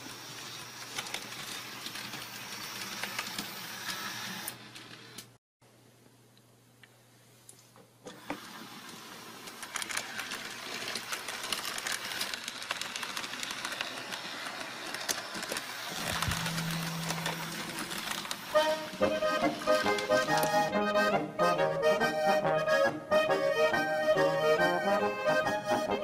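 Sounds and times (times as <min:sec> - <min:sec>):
small electric motors whirring: 0:00.5 - 0:05.3.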